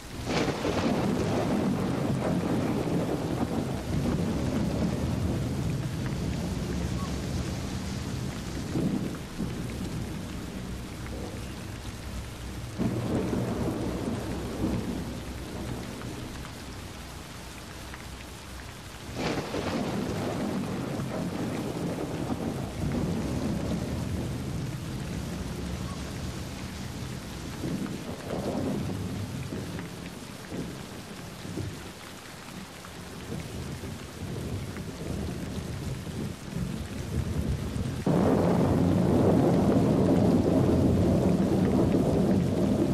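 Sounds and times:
steady rain: 0:00.0 - 0:42.9
low rumbles: 0:01.6 - 0:18.6.

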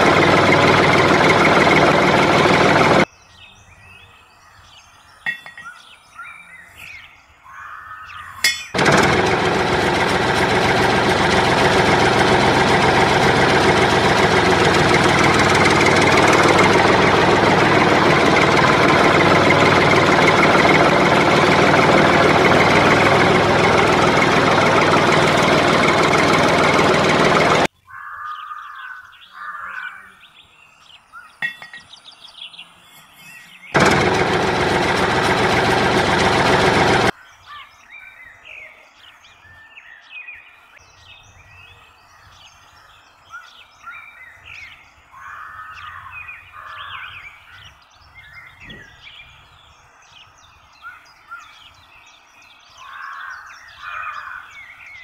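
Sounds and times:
small model motor running: 0:00.0 - 0:03.1, 0:08.8 - 0:27.7, 0:33.8 - 0:37.1
small birds chirping: 0:00.0 - 0:08.8, 0:11.6 - 0:33.8, 0:37.1 - 0:55.0
outdoor background noise: 0:00.0 - 0:55.0.

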